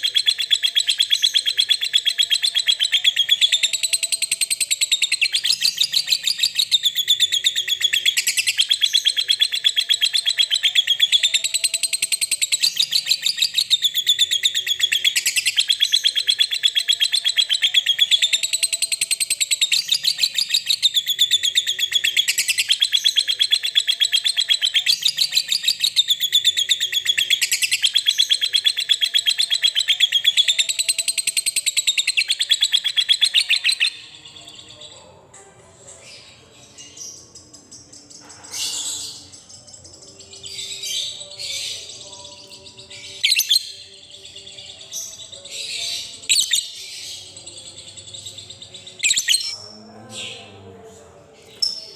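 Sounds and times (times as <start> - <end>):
lovebird chattering trill: 0.0 - 34.1.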